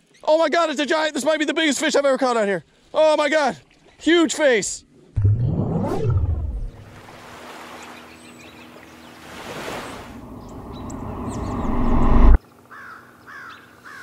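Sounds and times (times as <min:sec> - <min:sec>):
whoosh sound effect: 0:05.2 - 0:07.0, 0:09.7 - 0:12.4.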